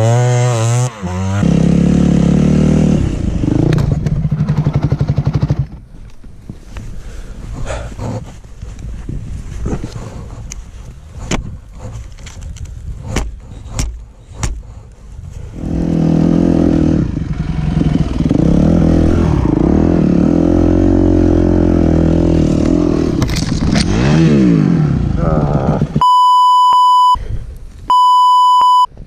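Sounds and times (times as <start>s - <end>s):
dirt bike engine revving: 0.0s - 5.8s, 15.5s - 26.0s.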